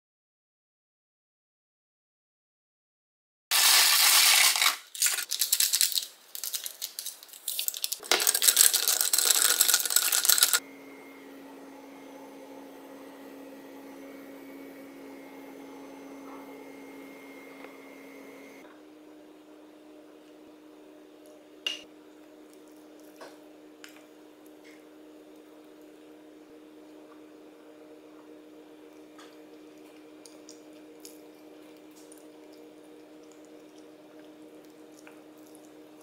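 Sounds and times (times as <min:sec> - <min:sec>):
handling noise crackling and rattling: 0:03.6 - 0:10.6.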